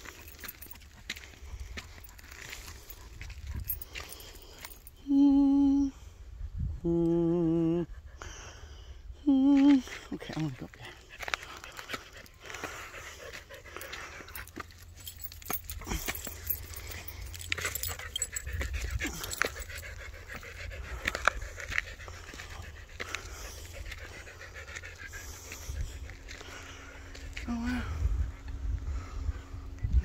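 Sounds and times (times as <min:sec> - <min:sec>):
footsteps crunching on dirt and rock: 0:00.0 - 0:04.9, 0:09.6 - 0:28.6
dog panting: 0:00.0 - 0:05.0, 0:09.6 - 0:30.0.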